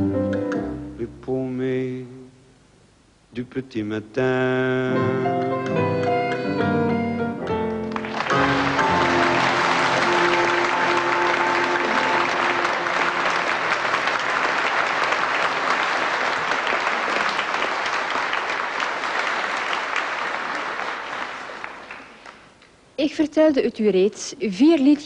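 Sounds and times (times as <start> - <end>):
band chord ringing: 5.7 - 13.5
audience applauding: 7.6 - 22.6.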